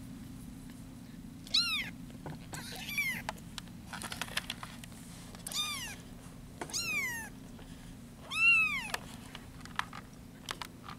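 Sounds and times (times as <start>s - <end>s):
kittens mewing: 1.4s - 3.3s, 5.4s - 6.0s, 6.7s - 7.4s, 8.2s - 9.0s.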